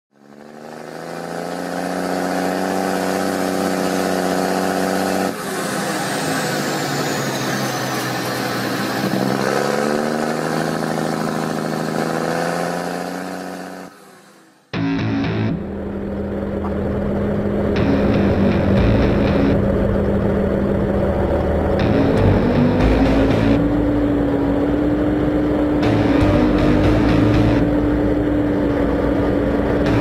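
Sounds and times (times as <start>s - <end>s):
tractor engine revving: 0.1s - 30.0s
high whine: 14.4s - 30.0s.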